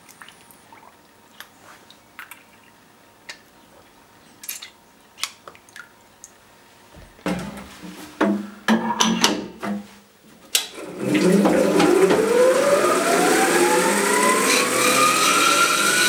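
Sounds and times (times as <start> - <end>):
water drips: 0.0 - 6.4
machine hum: 10.7 - 16.0.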